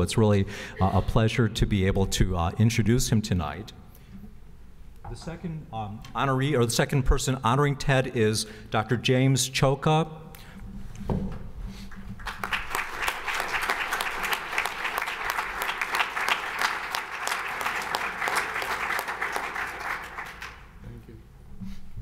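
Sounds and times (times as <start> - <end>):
audience applauding: 11.9 - 20.8.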